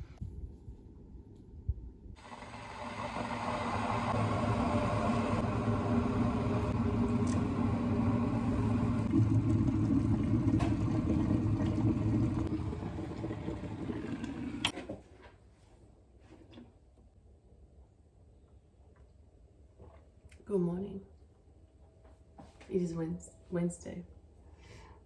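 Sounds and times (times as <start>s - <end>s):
kitchen appliance rumbling: 2.2s - 14.8s.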